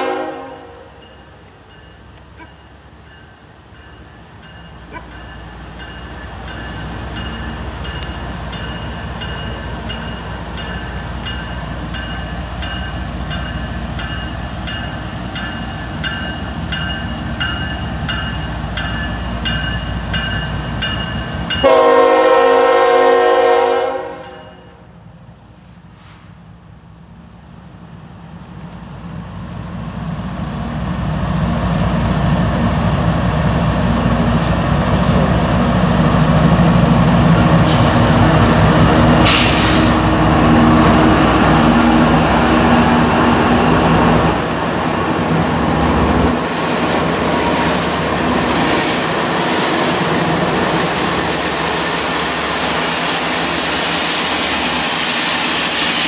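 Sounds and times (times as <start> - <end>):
locomotive air horn blast: 0.0 - 0.9, 21.6 - 24.5
train rumbling: 0.0 - 56.0
crossing bell ringing: 0.6 - 22.7, 24.1 - 24.9.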